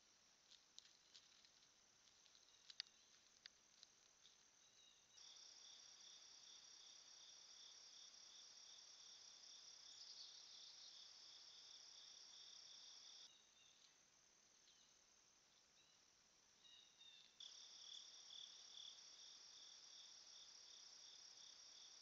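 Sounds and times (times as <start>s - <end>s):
high-pitched insect trill: 4.6s - 13.9s, 16.6s - 22.0s.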